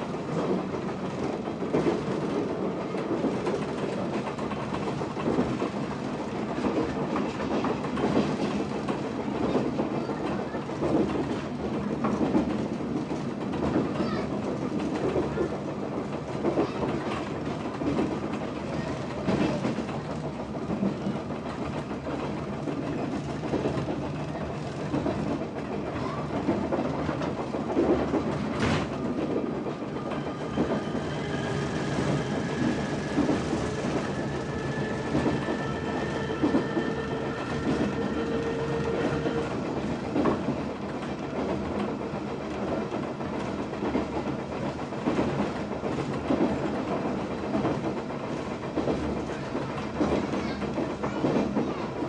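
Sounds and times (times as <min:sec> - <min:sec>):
train wheels clacking over rail joints: 0:00.0 - 0:52.0.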